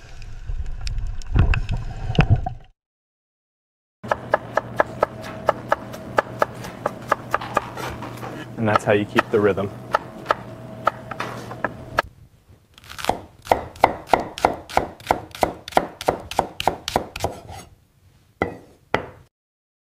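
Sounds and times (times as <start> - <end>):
knife chopping on wooden board: 4.1 - 11.8, 13.0 - 17.7.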